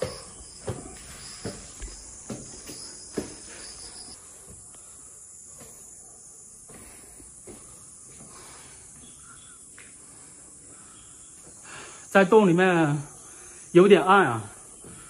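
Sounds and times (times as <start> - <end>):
footsteps on rock path: 0.0 - 4.2
insects chirring: 0.0 - 15.0.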